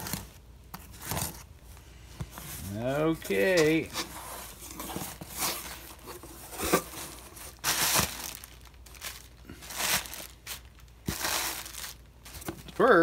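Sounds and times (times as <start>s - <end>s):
cardboard flaps rustling: 2.2s - 13.0s
plastic packing crinkling: 3.1s - 13.0s.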